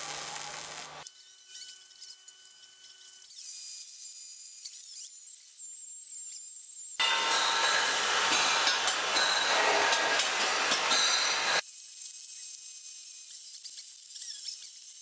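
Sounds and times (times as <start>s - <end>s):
metal pipe clinks: 7.0s - 11.6s
steady hiss: 7.0s - 11.6s.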